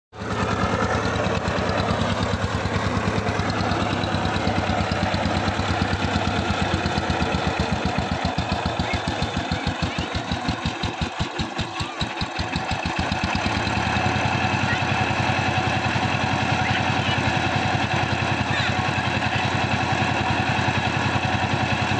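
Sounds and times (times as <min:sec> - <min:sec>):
diesel engine chugging: 0:00.1 - 0:21.9.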